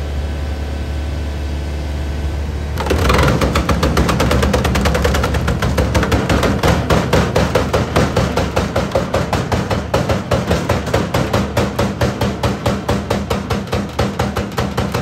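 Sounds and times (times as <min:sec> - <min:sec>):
machine drive humming: 0:00.0 - 0:08.0
log splitter rapid knocking: 0:02.8 - 0:15.0.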